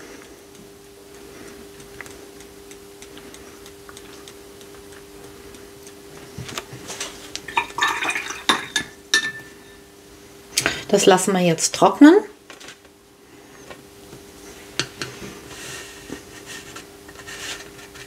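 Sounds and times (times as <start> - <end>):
low steady hum: 0.0 - 18.0
brush tapping: 0.5 - 6.9.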